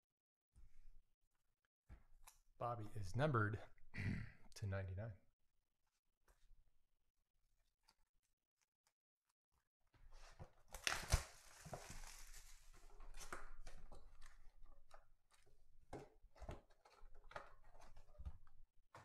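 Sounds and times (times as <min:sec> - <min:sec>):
packaging rustling and sliding: 0:10.2 - 0:13.4.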